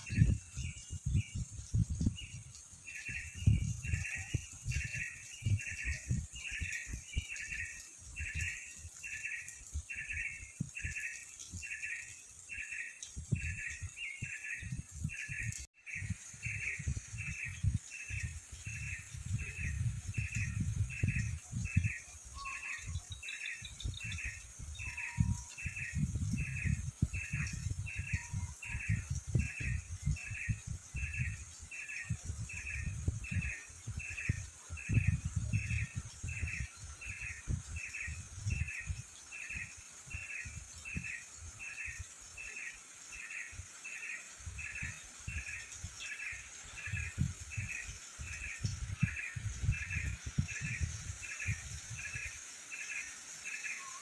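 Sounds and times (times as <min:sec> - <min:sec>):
high chirping call: 0:00.0 - 0:54.0.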